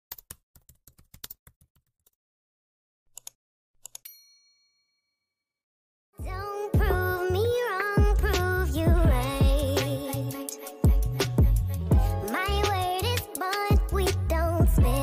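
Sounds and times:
keyboard typing clicks: 0.1s - 2.2s, 3.1s - 4.1s
bell ding: 4.0s - 5.2s
music: 6.2s - 15.0s.

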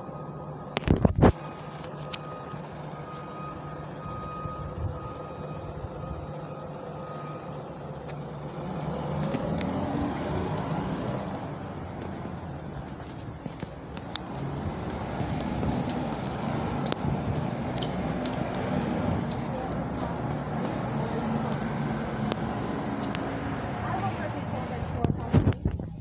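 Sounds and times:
reversing alarm beeping: 0.0s - 9.1s
bus engine idling and revving: 0.0s - 26.0s
wind buffeting microphone: 24.8s - 26.0s.

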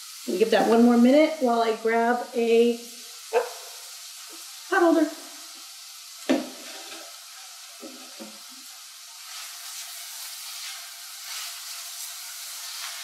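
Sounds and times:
onion and garlic sizzling in oil: 0.0s - 13.0s
spatula scraping pan: 6.4s - 8.4s, 9.2s - 13.0s.

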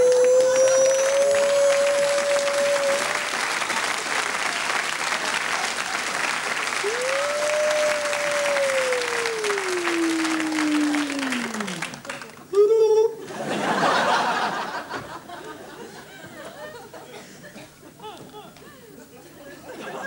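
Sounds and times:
man's wordless vocal cry: 0.0s - 3.2s, 6.9s - 11.8s
audience applauding: 0.0s - 12.6s.

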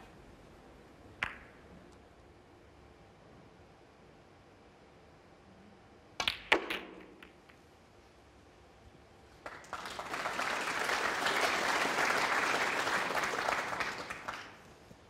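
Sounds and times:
audience applauding: 9.4s - 14.8s.

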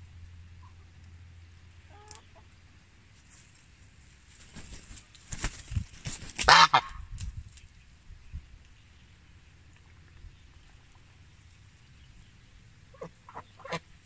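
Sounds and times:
chicken calling: 1.9s - 2.5s, 12.9s - 13.9s
chicken wings flapping: 4.3s - 7.5s.

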